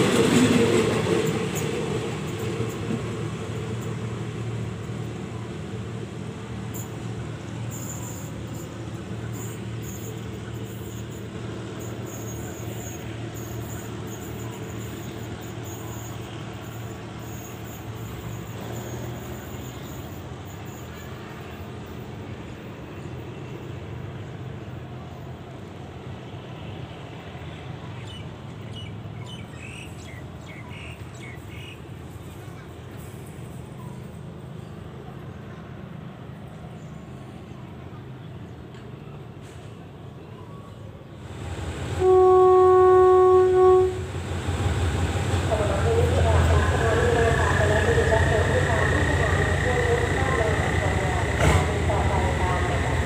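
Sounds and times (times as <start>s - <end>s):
diesel locomotive engine humming: 0.0s - 53.0s.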